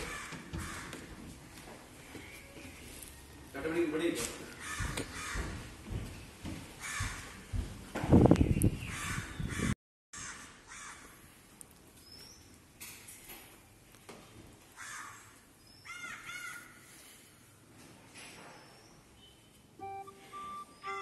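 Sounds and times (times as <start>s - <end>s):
crows cawing: 0.0s - 1.2s, 4.5s - 5.6s, 6.8s - 7.4s, 9.0s - 11.2s, 14.8s - 16.8s.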